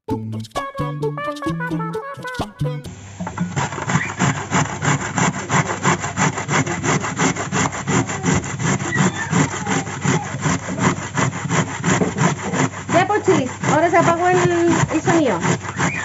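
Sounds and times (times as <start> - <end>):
carrot grating on metal grater: 3.2 - 16.0.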